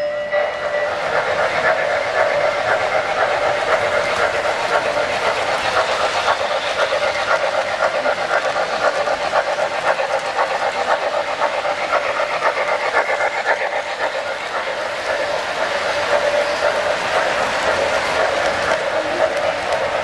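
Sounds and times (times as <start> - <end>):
model trains running on track: 0.0 - 20.0.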